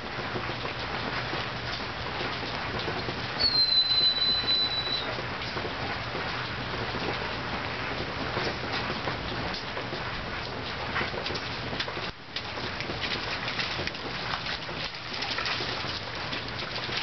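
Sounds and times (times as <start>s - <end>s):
rain hiss: 0.0s - 17.0s
high whistling note: 3.4s - 5.1s.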